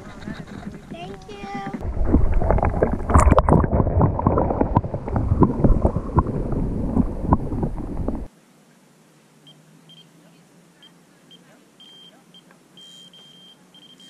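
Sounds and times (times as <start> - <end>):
wind buffeting microphone: 0.0 - 8.3.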